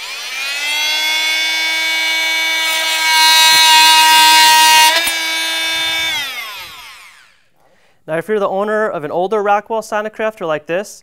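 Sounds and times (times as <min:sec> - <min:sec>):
blade cutting into wood: 0:00.0 - 0:07.4
motor winding down: 0:00.0 - 0:07.4
oscillating multi-tool whining: 0:00.0 - 0:07.4.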